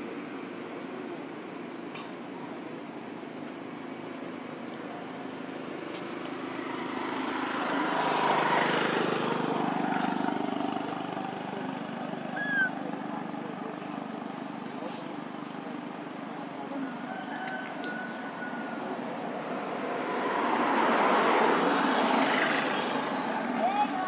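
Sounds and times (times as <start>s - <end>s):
small birds chirping: 0.9s - 14.9s
vehicle passing: 5.5s - 15.3s, 17.7s - 24.0s.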